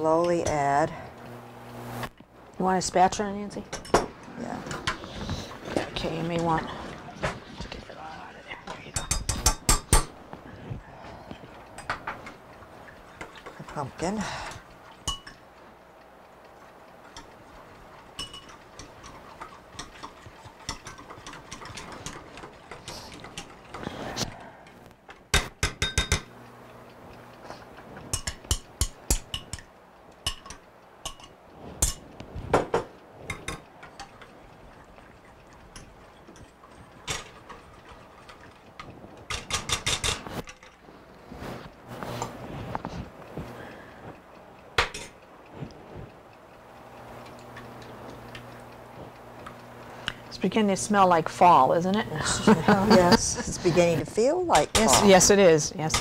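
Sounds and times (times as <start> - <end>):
whisk clicking against metal saucepan: 15.0 - 15.4, 17.0 - 23.9, 28.0 - 32.0, 32.6 - 40.6.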